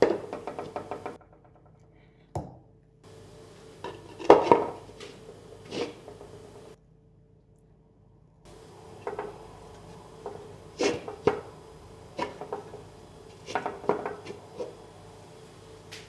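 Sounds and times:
bones clunking in clay pot: 8.5s - 15.0s.

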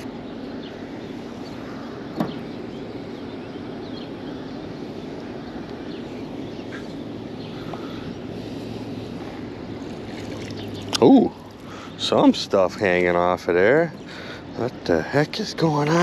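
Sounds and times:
faint bird chirps: 0.0s - 12.4s
water: 0.0s - 16.0s
wind: 0.0s - 16.0s.

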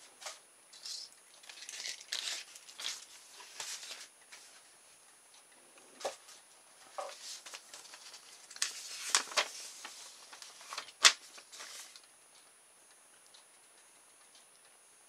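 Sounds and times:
paper leaflet rustling: 1.4s - 4.6s, 7.0s - 12.0s
sharp paper snaps: 7.5s - 9.6s, 10.3s - 12.0s.

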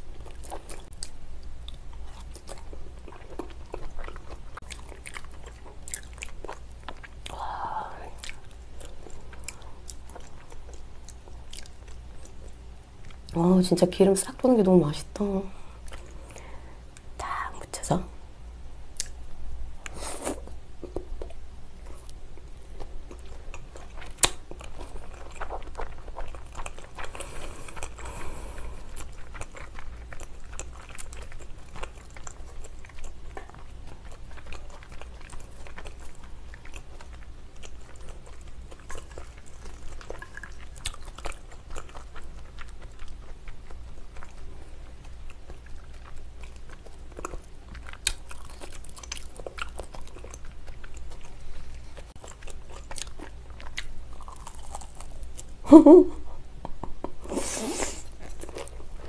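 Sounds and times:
chewing mouth sounds: 0.1s - 13.4s, 19.8s - 55.6s, 57.0s - 59.0s.

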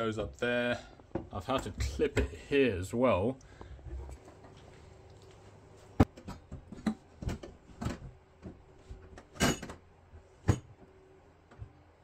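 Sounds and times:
boiler handling knocks and clicks: 6.0s - 10.9s.

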